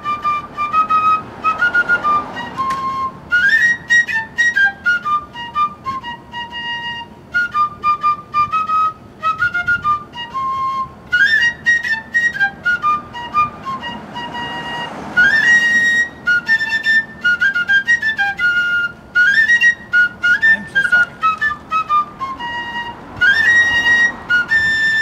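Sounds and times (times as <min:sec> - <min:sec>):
fife playing quick tune: 0:19.7 - 0:22.3.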